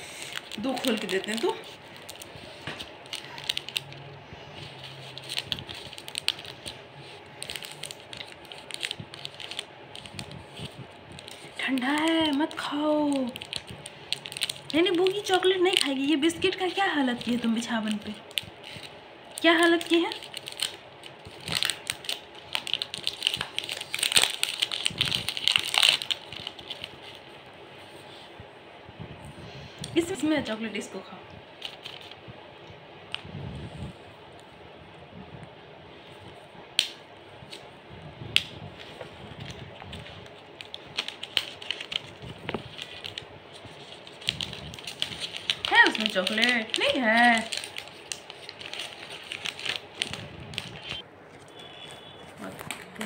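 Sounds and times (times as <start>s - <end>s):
wrapper crinkling and tearing: 0.0s - 27.4s, 31.5s - 32.2s, 38.4s - 53.0s.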